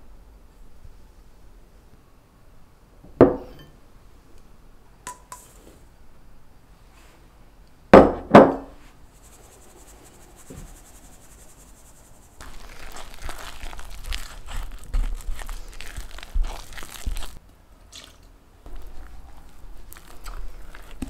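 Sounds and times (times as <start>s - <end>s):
flour sifting through sieve: 8.8s - 17.4s, 18.7s - 21.0s
spatula stirring batter in bowl: 9.1s - 17.4s, 18.7s - 21.0s.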